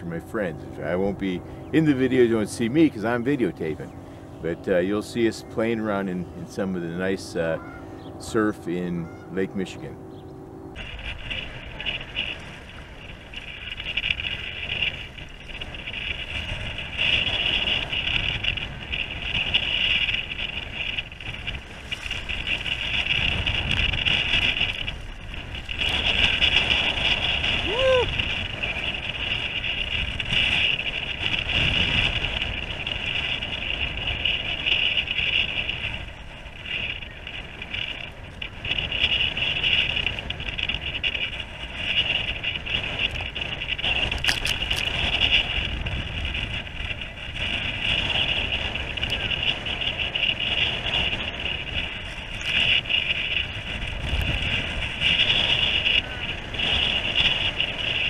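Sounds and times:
wind buffeting microphone: 0:00.0 - 0:58.0
water splashing against kayak hull: 0:42.7 - 0:55.8.

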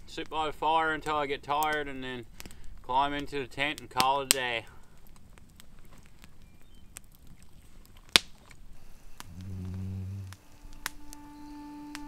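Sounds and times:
campfire crackling: 0:00.0 - 0:12.0
person humming: 0:09.2 - 0:12.0.

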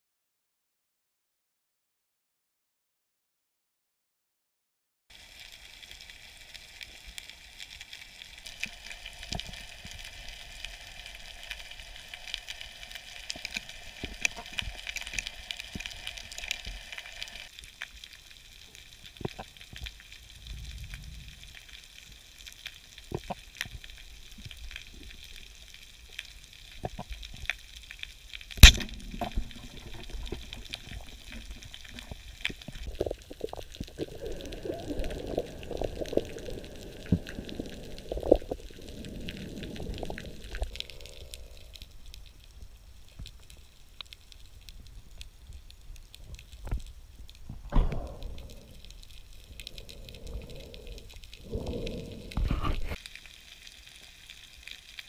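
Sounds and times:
underwater crackling clicks: 0:08.4 - 0:18.0, 0:19.0 - 0:20.8, 0:22.4 - 0:25.4, 0:26.1 - 0:55.0
speargun shot crack: 0:28.6 - 0:29.0.

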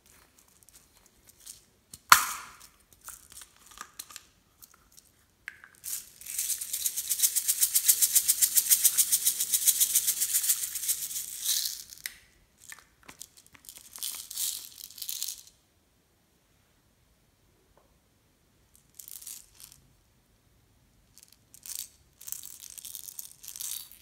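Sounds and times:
beads rattling in plastic bottle: 0:00.0 - 0:04.3, 0:04.9 - 0:15.5, 0:18.8 - 0:19.8, 0:21.1 - 0:24.0.

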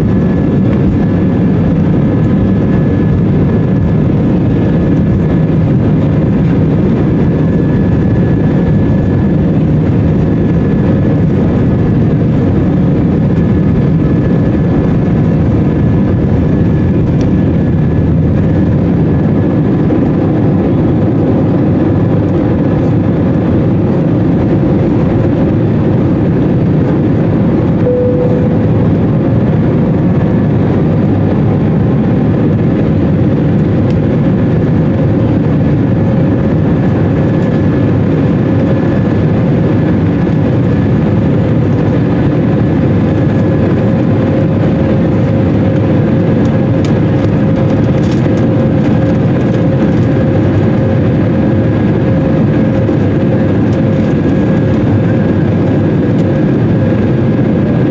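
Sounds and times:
jet engines and airflow: 0:00.0 - 0:57.9
thin steady tone: 0:27.8 - 0:28.9.

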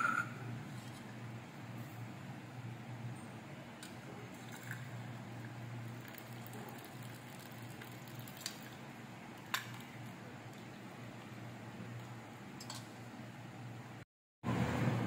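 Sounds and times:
tea trickling through strainer: 0:04.3 - 0:10.9.

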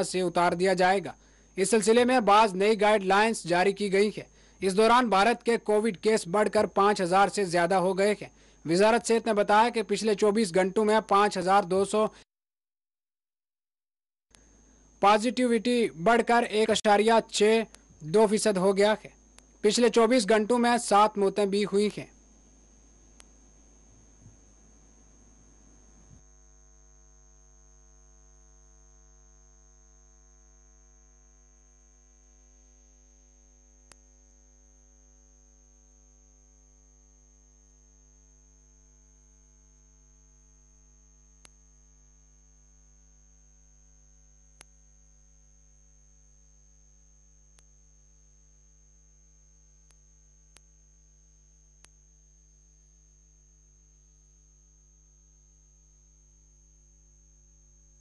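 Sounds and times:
electrical mains hum: 0:00.0 - 0:12.2, 0:14.3 - 0:58.0
faint clicks: 0:51.8 - 0:52.0.

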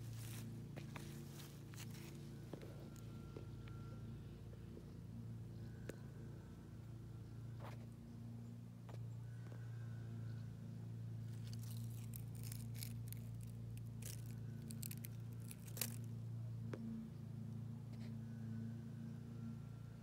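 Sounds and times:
twig crackling in damp soil: 0:00.0 - 0:03.8, 0:11.2 - 0:16.9
steady low hum: 0:00.0 - 0:20.0.

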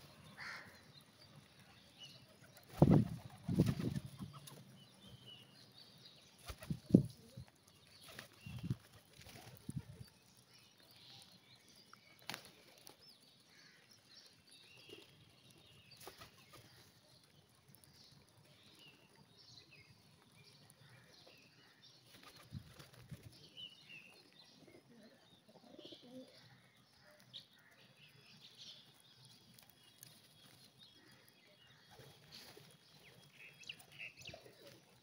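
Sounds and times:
pigeon wings flapping: 0:02.6 - 0:04.5.

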